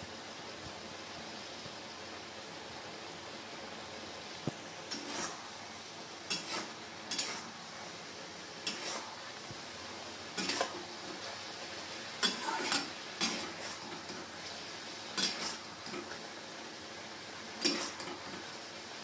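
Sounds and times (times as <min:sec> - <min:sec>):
low sizzle from pan: 0:00.0 - 0:19.0
metal spatula scraping wok: 0:04.9 - 0:05.6, 0:06.2 - 0:07.7, 0:08.6 - 0:09.3, 0:10.3 - 0:11.4, 0:12.2 - 0:16.2, 0:17.6 - 0:18.5.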